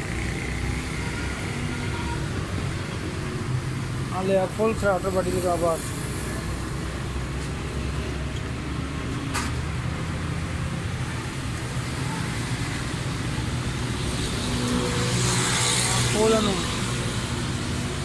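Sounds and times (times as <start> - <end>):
low hum of traffic: 0.0 - 18.0.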